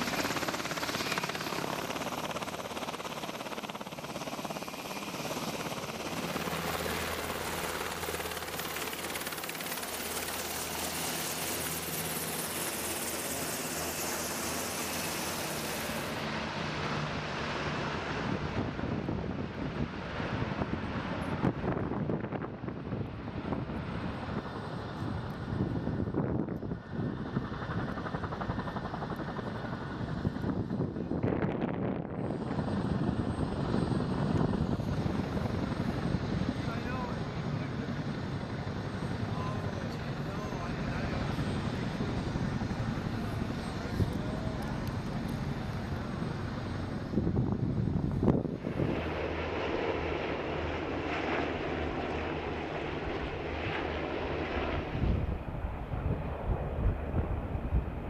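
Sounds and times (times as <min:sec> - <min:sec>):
helicopter rotors beating: 0:00.0 - 0:58.0.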